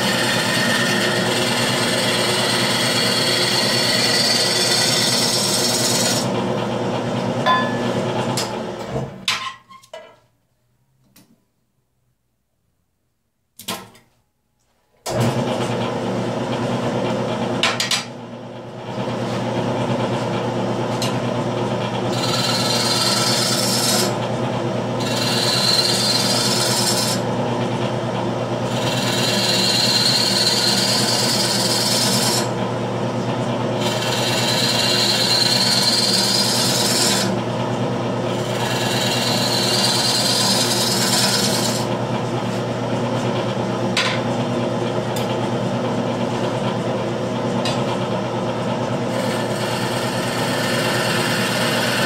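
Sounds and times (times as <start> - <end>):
gouge shaving wood: 0.0 - 6.4, 22.1 - 24.2, 25.0 - 27.3, 28.7 - 32.6, 33.8 - 37.4, 38.3 - 41.9, 49.1 - 52.0
wood lathe motor hum: 0.0 - 8.9, 21.0 - 42.6, 46.1 - 52.0.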